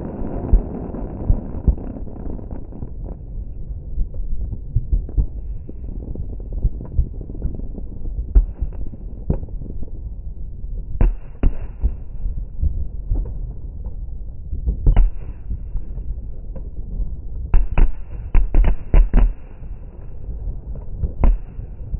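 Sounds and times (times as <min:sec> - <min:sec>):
fireworks bangs and thumps: 0:00.0 - 0:03.0, 0:17.5 - 0:19.5.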